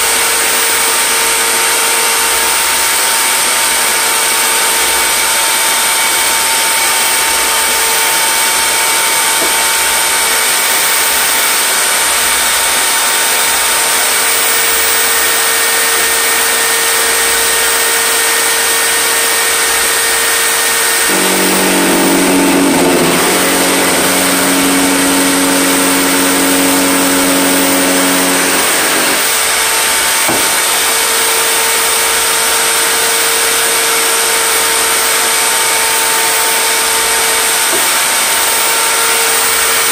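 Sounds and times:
power cutter motor whining: 0:04.2 - 0:30.8.

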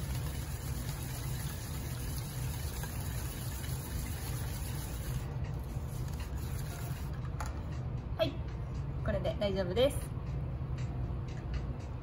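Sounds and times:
whisk beating liquid in metal bowl: 0:00.0 - 0:07.2.

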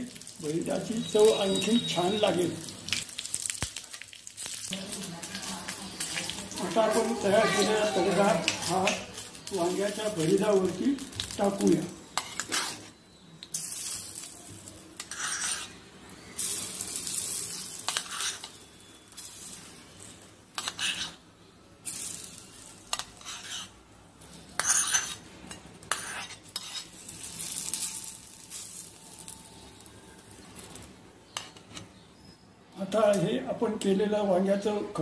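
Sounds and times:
spoon scraping inside a pan: 0:12.0 - 0:14.3, 0:15.0 - 0:29.4, 0:30.6 - 0:32.0.

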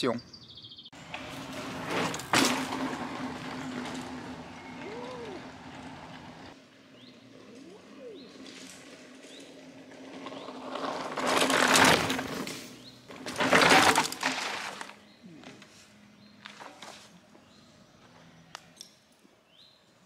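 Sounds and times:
birds chirping faintly: 0:00.0 - 0:01.1, 0:03.4 - 0:10.8, 0:15.0 - 0:20.0
bike tyres crunching on dirt: 0:01.0 - 0:18.4.

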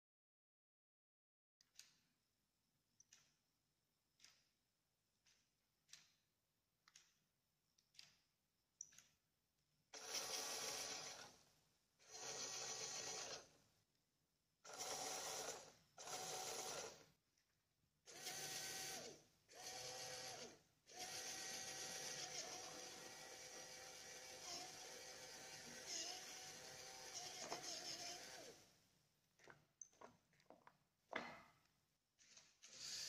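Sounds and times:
small electric motor whirring: 0:10.0 - 0:11.4, 0:12.0 - 0:13.6, 0:14.7 - 0:17.0, 0:18.1 - 0:28.7.

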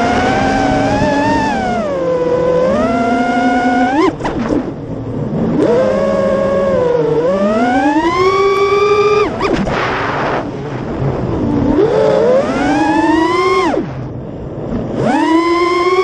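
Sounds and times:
quadcopter motors whining: 0:00.0 - 0:10.6, 0:11.6 - 0:16.0
rush of air: 0:09.4 - 0:12.0.

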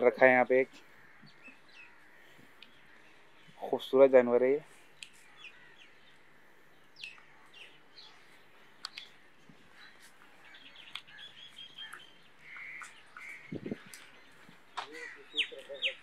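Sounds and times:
faint bird chirps: 0:04.9 - 0:16.0.

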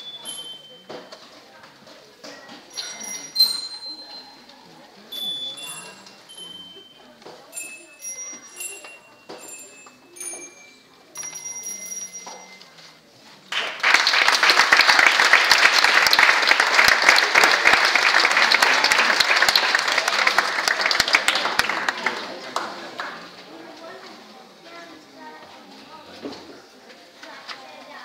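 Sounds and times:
audience applause: 0:13.5 - 0:23.3.

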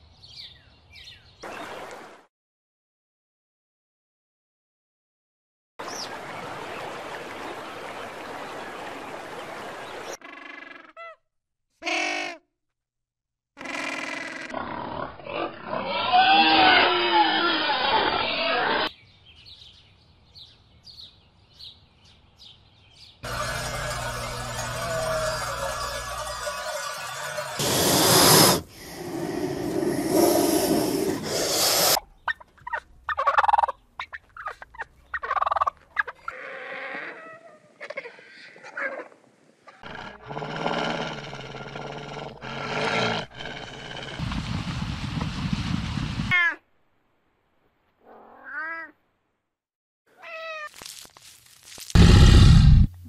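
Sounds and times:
piglets grunting and squealing: 0:13.6 - 0:18.9
harsh animal growl: 0:14.1 - 0:18.9, 0:27.6 - 0:31.9, 0:39.8 - 0:44.4, 0:52.0 - 0:53.0
thin animal cries: 0:15.8 - 0:18.9, 0:50.1 - 0:50.8.

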